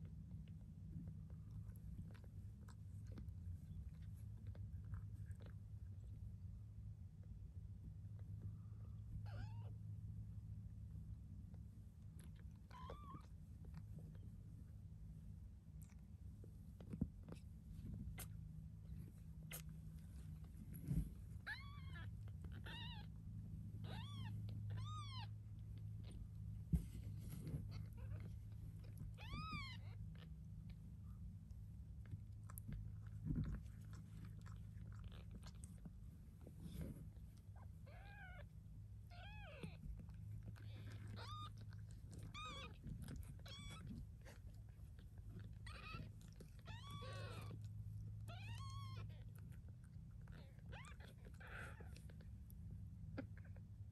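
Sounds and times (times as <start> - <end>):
cat purring: 0.0 - 53.9
steady low hum: 0.0 - 53.9
kittens mewing: 23.8 - 25.3, 39.1 - 49.4, 50.2 - 52.2.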